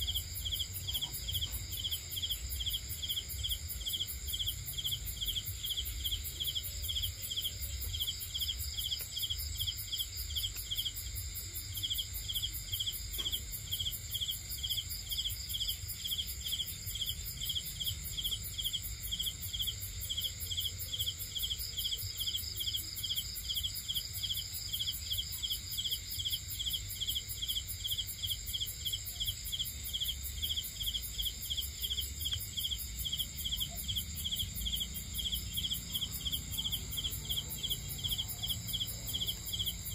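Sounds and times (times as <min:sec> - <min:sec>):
crickets and insects trilling: 0:00.0 - 0:39.9
pulsing insect trill: 0:13.7 - 0:39.9.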